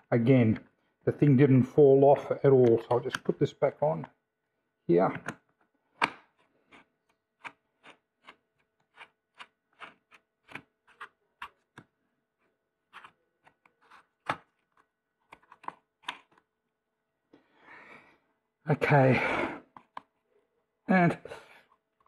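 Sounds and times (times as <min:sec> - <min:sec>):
plastic clicks and knocks: 0:02.7 - 0:03.4, 0:05.1 - 0:12.0.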